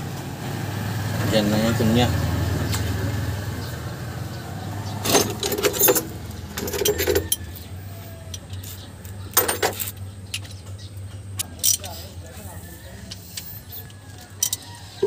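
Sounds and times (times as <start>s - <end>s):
metal tools clinking and rattling: 5.0s - 7.6s, 8.3s - 12.5s, 13.1s - 15.0s.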